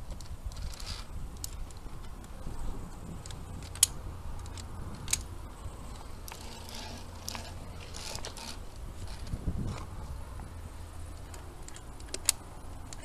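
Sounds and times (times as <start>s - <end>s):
steady low rumble: 0.0s - 13.0s
carabiners clinking on metal: 3.1s - 9.8s.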